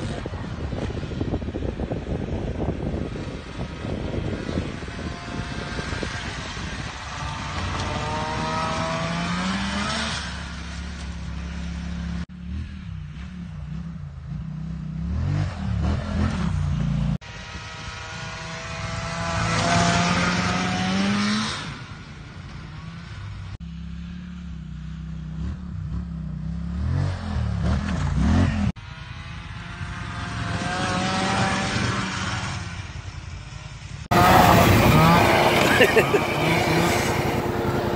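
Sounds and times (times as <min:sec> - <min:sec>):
snowmobile engine revving: 0:03.1 - 0:10.8, 0:15.0 - 0:21.8, 0:29.6 - 0:33.1, 0:34.0 - 0:37.9.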